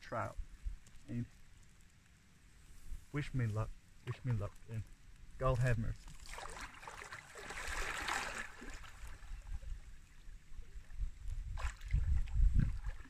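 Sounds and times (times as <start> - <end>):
water splashing and sloshing: 5.6 - 13.0.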